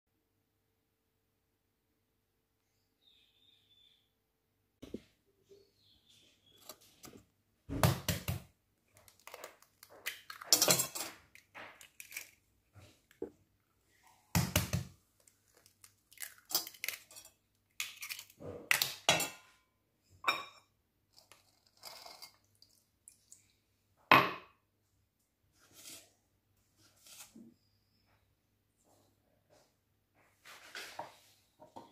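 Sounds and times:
eggs cracked on metal bowl: 0:09.0 - 0:12.5, 0:14.3 - 0:19.4.

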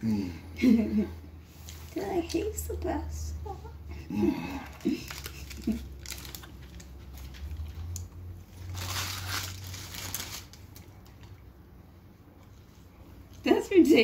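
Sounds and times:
low steady hum: 0:00.0 - 0:14.0
paper wrapper crinkling: 0:04.7 - 0:11.4.

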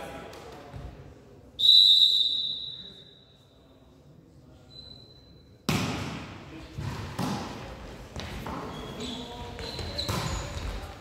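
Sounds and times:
referee's whistle blast: 0:01.6 - 0:03.2
volleyball struck hard: 0:05.7 - 0:07.6.

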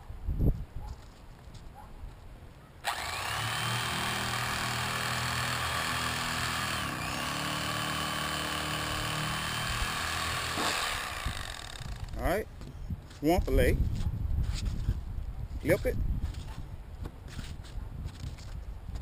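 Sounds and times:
electric fillet knife running: 0:02.8 - 0:12.0.

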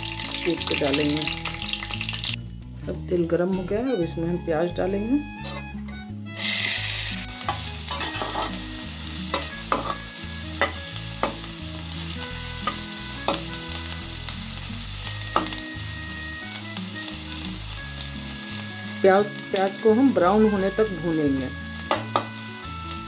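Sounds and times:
onions sizzling in hot oil: 0:00.0 - 0:02.4, 0:06.4 - 0:23.0
metal spatula scraping a pan: 0:05.4 - 0:08.7, 0:09.3 - 0:11.4.

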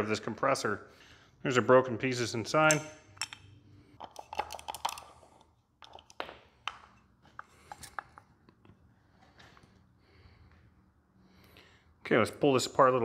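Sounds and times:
metal parts clicking and clinking: 0:02.6 - 0:08.0.

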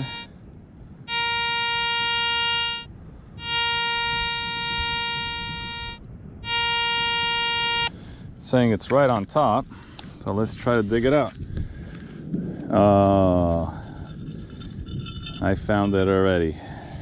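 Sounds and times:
metal detector tone: 0:00.0 - 0:00.3, 0:01.1 - 0:07.9, 0:14.2 - 0:16.0.

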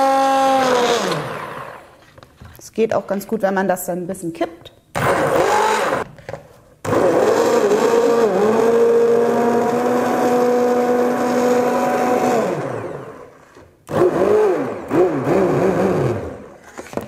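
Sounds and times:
immersion blender running: 0:00.0 - 0:02.0, 0:05.0 - 0:06.1, 0:06.8 - 0:16.6.

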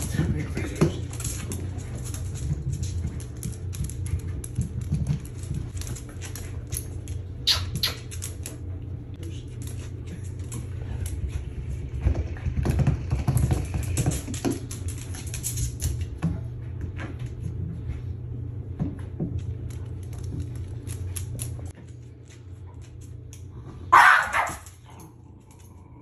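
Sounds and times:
dog claws clicking on hard floor: 0:00.0 - 0:08.7, 0:12.1 - 0:16.4, 0:18.8 - 0:23.5
low steady hum: 0:00.0 - 0:26.0.

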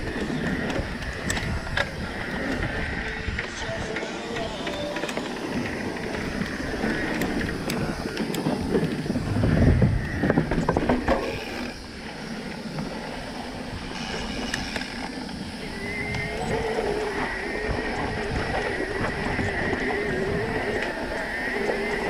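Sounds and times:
bike rattles and knocks: 0:00.0 - 0:11.9
mountain bike riding on dirt: 0:00.0 - 0:22.0.

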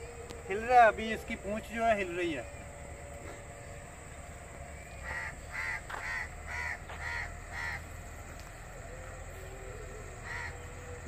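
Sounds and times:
faint low outdoor rumble: 0:00.0 - 0:11.0
crow cawing: 0:05.0 - 0:07.9, 0:10.2 - 0:10.9.

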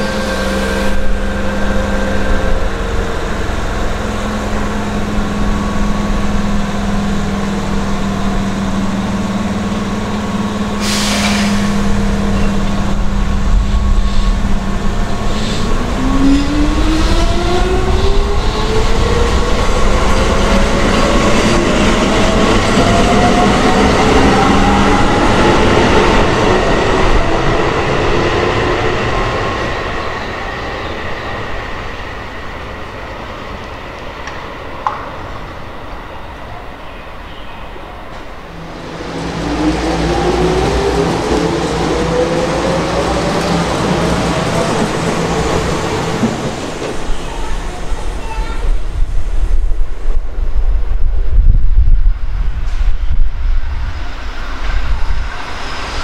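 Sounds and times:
wheel and rail rumble: 0:00.0 - 0:56.0
short hiss: 0:10.8 - 0:11.6.

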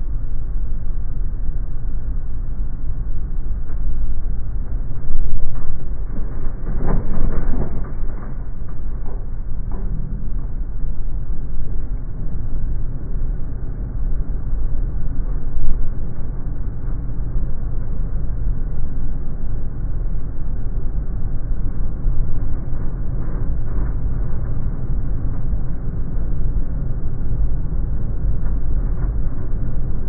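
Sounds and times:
aircraft tyres rumbling on runway: 0:04.6 - 0:18.2.

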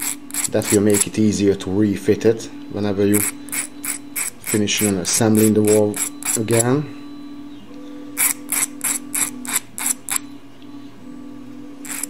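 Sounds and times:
file scraping brass: 0:00.0 - 0:01.2, 0:03.1 - 0:06.6, 0:08.2 - 0:10.2
faint steady hum: 0:00.0 - 0:12.0.

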